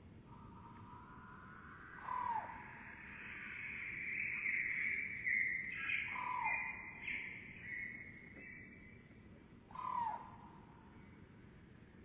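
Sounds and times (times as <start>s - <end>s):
slowed-down bird calls: 0.3s - 8.6s.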